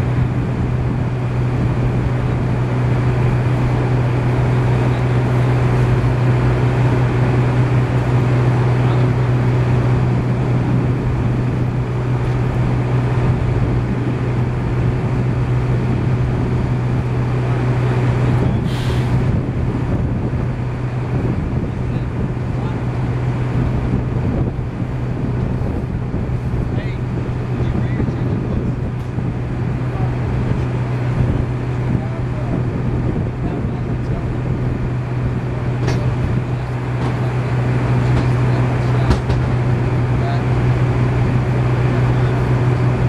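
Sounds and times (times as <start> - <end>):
engine droning steadily: 0.0 - 43.0
short hiss: 18.7 - 19.1.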